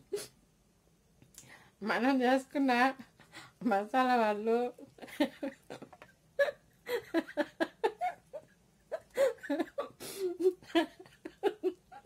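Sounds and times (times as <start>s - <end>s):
woman laughing: 4.8s - 12.0s.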